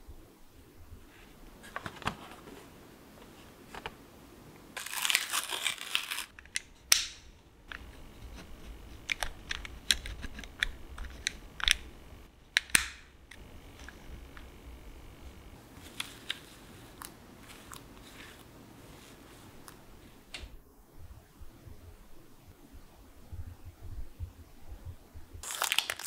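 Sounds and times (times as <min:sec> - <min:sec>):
crinkling rustle: 0:01.0 - 0:04.0, 0:04.8 - 0:06.5, 0:15.6 - 0:20.2, 0:25.4 - 0:26.0.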